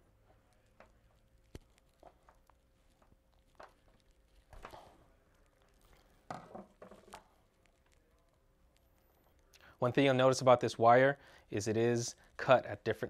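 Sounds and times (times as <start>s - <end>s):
tool set down on wooden bench: 6.3s - 7.1s.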